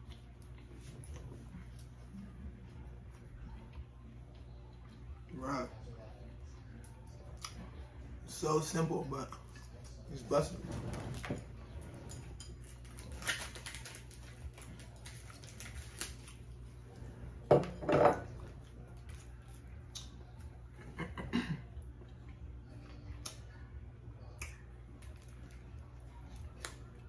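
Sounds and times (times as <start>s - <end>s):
plates and cutlery clattering: 17.4s - 18.4s.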